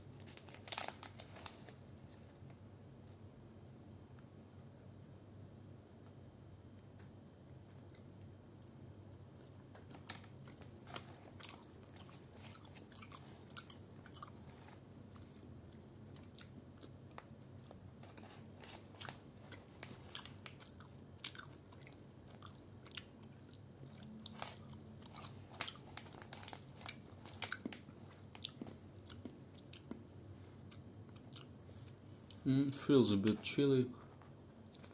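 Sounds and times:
person chewing crunchy snack: 9.4 - 15.5, 16.1 - 30.0, 30.7 - 32.4, 34.6 - 34.9.

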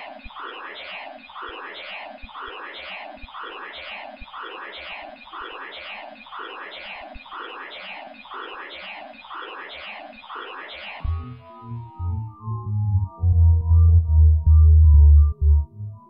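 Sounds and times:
repeating noisy electronic texture: 0.0 - 11.7
synthesizer music with low bass: 11.0 - 16.0.

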